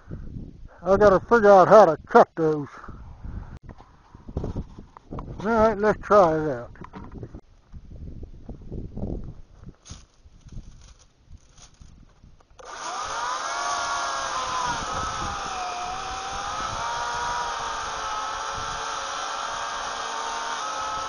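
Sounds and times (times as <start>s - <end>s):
electric chainsaw cutting wood: 12.6s - 21.0s.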